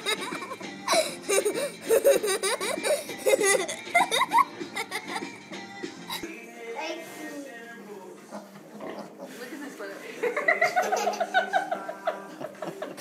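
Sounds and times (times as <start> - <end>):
person giggling: 0.0 - 5.4, 10.4 - 13.0.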